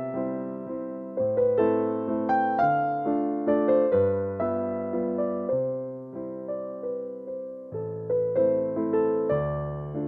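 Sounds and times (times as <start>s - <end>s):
gentle piano music: 0.0s - 10.0s.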